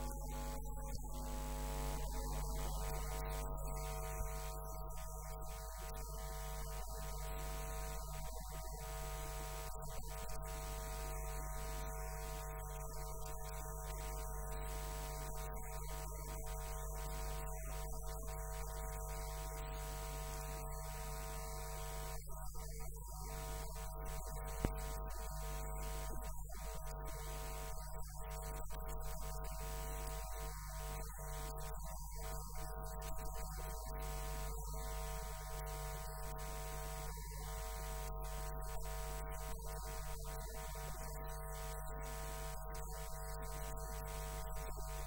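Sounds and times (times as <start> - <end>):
electrical mains hum: 0.0 - 15.6.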